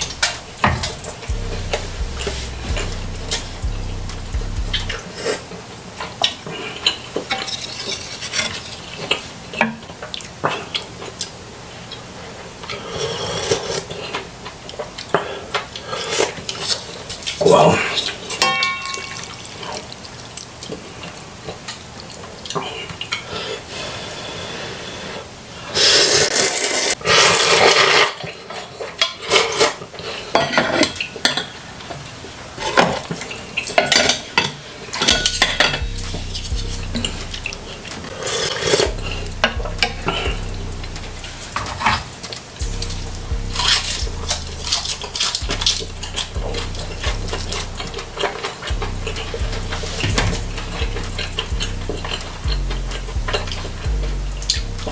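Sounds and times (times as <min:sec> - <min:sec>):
spoon clinking against pan: 0:18.4 - 0:19.5
chewing: 0:35.0 - 0:54.9.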